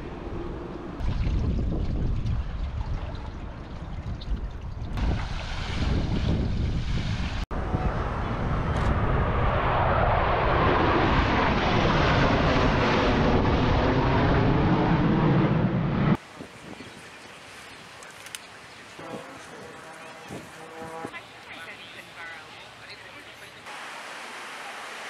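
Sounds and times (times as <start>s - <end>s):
airplanes flying overhead: 0.0s - 3.7s, 7.5s - 23.6s.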